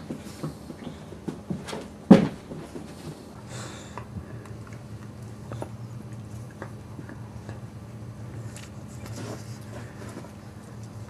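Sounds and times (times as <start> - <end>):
dogs scuffling: 0.0 - 3.4, 8.3 - 11.0
low steady hum: 0.0 - 11.0.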